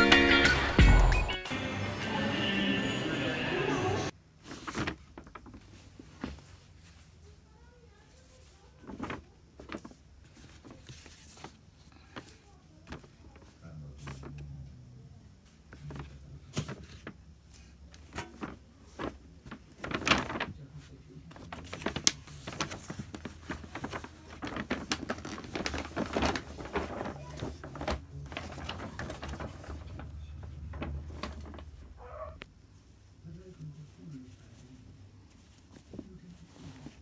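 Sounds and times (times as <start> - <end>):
paper bag rustling: 3.9 - 14.5, 15.5 - 32.4.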